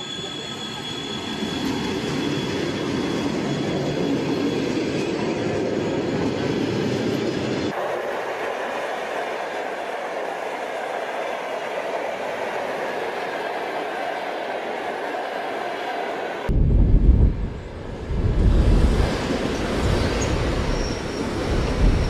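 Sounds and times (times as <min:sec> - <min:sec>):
lighter train passing: 0:00.0 - 0:22.0
train wheels rumbling on rails: 0:08.4 - 0:22.0.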